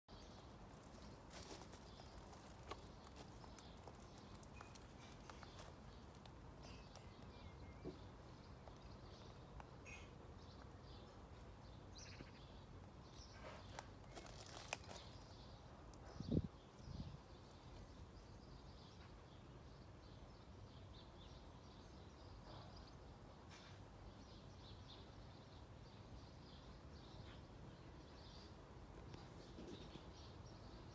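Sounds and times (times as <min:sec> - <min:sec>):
small clicks and rustles: 0:00.7 - 0:07.1.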